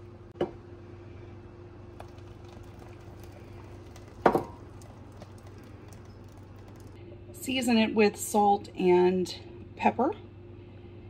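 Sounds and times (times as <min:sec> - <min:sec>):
faint hum: 0:00.0 - 0:11.0
thick soup pouring into a pot: 0:01.9 - 0:07.0.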